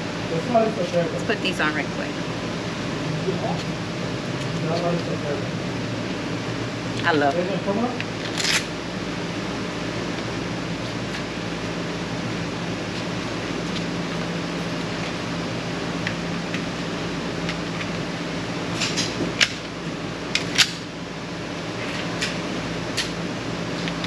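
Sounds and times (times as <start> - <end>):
ventilation fan humming: 0.0 - 24.0.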